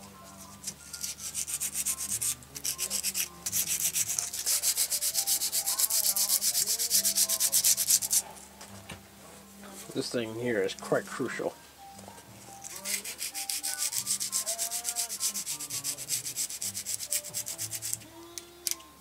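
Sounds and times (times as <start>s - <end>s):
scratchy hand scrubbing: 1.0s - 8.2s, 12.6s - 18.0s.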